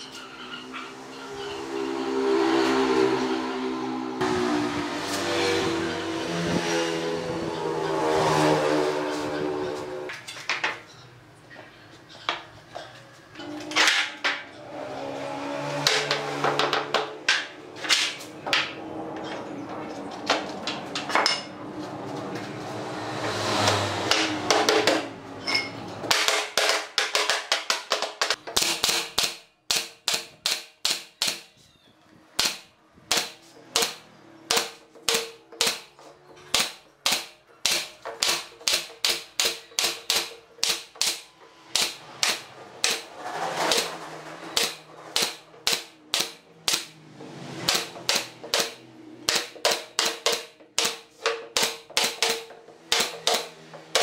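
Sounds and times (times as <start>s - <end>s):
nail gun firing: 26.1s - 31.5s, 32.4s - 35.9s, 36.5s - 43.1s, 44.5s - 46.9s, 47.6s - 54.0s.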